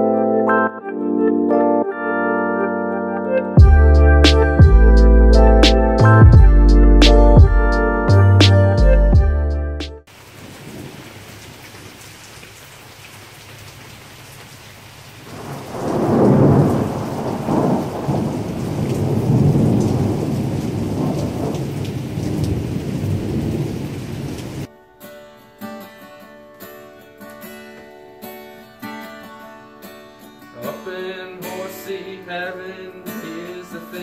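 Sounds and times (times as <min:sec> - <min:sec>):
steady rain falling: 0:10.1 - 0:24.7
rolling thunder rumble: 0:15.3 - 0:24.7
acoustic guitar strumming: 0:24.7 - 0:34.0.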